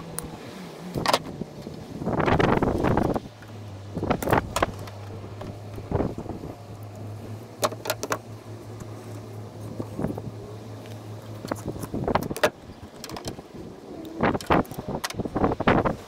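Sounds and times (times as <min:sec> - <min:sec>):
steady low hum: 0:00.0 - 0:16.0
wire stripper clicking and snipping: 0:03.0 - 0:05.8, 0:07.6 - 0:08.2, 0:10.8 - 0:13.4.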